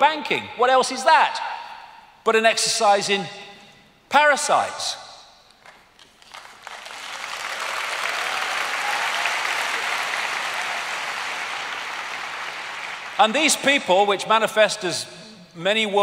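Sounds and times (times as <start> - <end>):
large audience applauding: 5.6 - 13.6.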